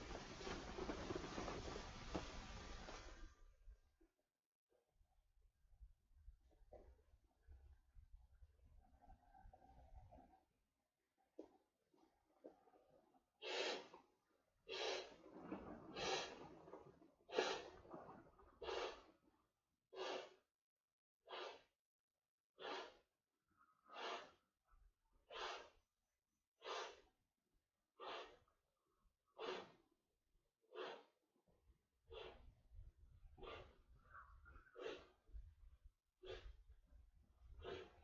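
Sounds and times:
person breathing hard: 0:15.9 - 0:16.4, 0:18.6 - 0:19.1, 0:20.0 - 0:20.5, 0:28.0 - 0:28.5, 0:36.2 - 0:36.6.

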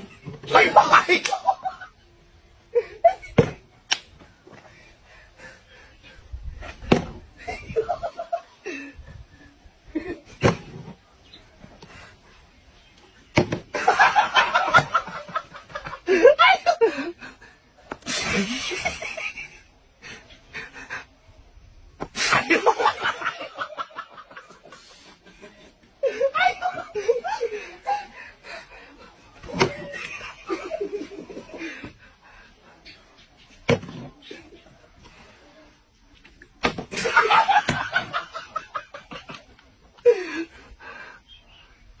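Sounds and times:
people laughing: 0:00.0 - 0:03.6, 0:07.4 - 0:10.5, 0:13.7 - 0:21.5, 0:22.1 - 0:33.1, 0:36.8 - 0:41.3.

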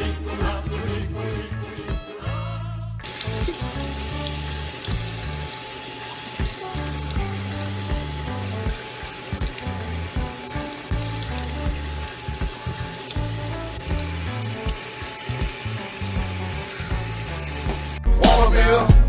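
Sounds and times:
background music: 0:00.0 - 0:19.0
faucet water splashing: 0:03.0 - 0:18.0.

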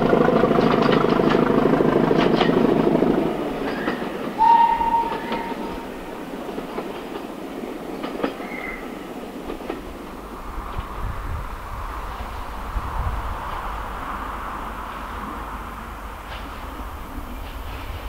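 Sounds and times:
wheels clicking over rails: 0:00.0 - 0:04.4
diesel train running: 0:00.0 - 0:18.0
train horn: 0:04.4 - 0:06.0.

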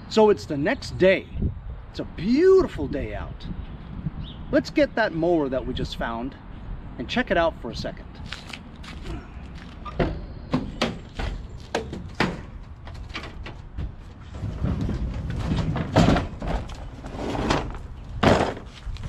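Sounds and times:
lawn mower dragged and clattering: 0:11.0 - 0:19.0.

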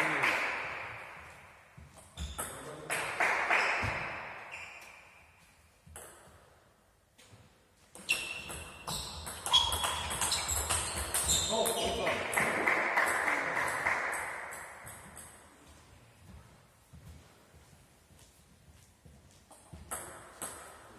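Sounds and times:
table tennis ball pings: 0:08.0 - 0:13.4.

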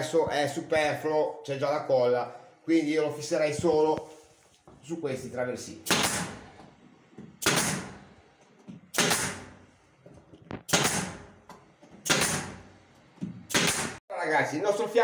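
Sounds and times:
nail gun firing: 0:05.8 - 0:06.4, 0:07.4 - 0:08.0, 0:08.9 - 0:09.6, 0:10.6 - 0:11.3, 0:12.0 - 0:12.6, 0:13.5 - 0:14.0.

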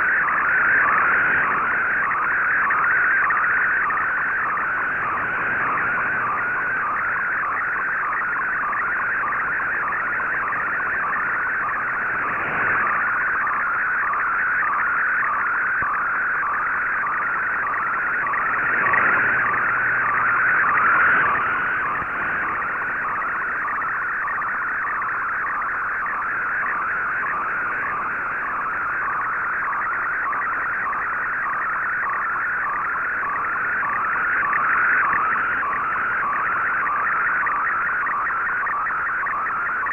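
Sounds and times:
radio hiss: 0:04.6 - 0:07.0, 0:09.4 - 0:13.7, 0:18.2 - 0:23.2.

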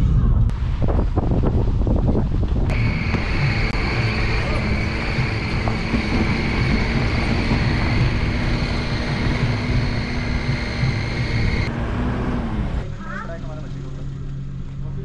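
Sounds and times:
high whine: 0:00.0 - 0:11.7
rushing noise: 0:00.0 - 0:12.8
motor humming: 0:02.7 - 0:11.7.

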